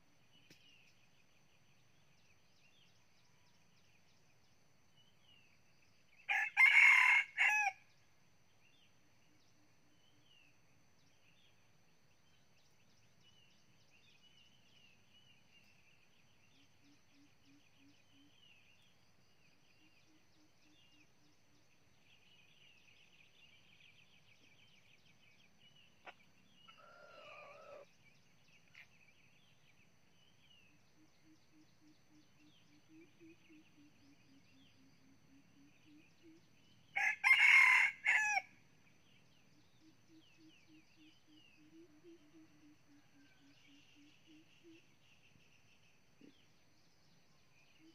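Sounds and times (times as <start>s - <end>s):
rooster crowing: 6.3s - 7.8s, 37.0s - 38.5s
faint high chirping: 25.4s - 37.1s
faint bird call: 26.0s - 27.9s.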